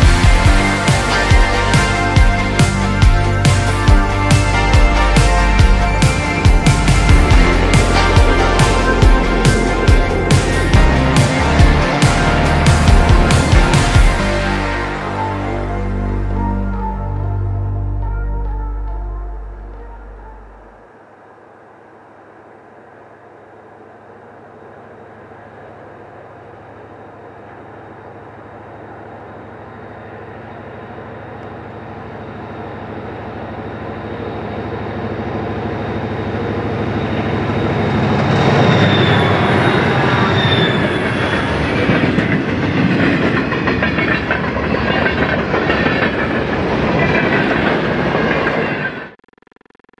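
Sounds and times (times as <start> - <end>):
train cars clattering over rails: 0.0 - 14.8, 35.6 - 49.1
locomotive engine hum: 0.0 - 49.2.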